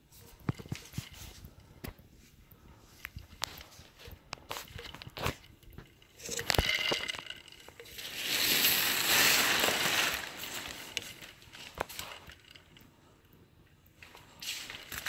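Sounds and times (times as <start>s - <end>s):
plastic sheeting crinkling: 3.4s - 12.8s.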